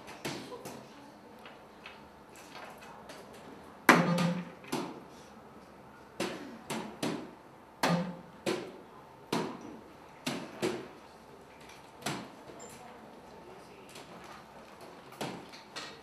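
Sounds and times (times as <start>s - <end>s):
darts striking dartboard: 3.9s - 5.0s, 6.2s - 9.6s.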